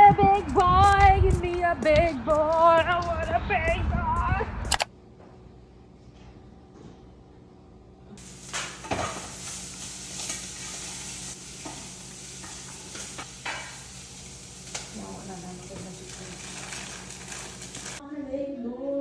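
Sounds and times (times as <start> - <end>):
food sizzling in a pan: 8.2 - 18.0.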